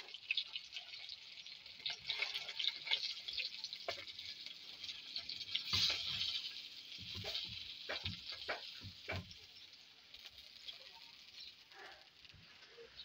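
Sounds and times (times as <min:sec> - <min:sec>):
fish frying in hot oil: 0:00.0 - 0:13.0
utensil knocking in pan: 0:07.0 - 0:09.4.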